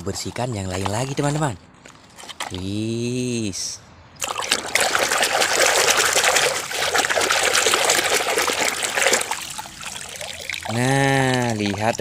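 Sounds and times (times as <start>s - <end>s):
water sloshing and splashing: 0.0s - 2.8s, 4.2s - 12.0s
hand scrubbing toy: 4.2s - 12.0s.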